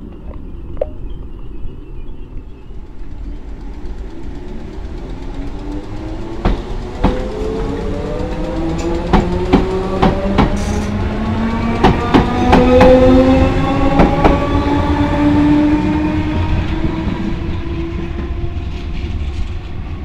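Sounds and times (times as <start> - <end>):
wheels clicking over rail joints: 2.4 - 14.7.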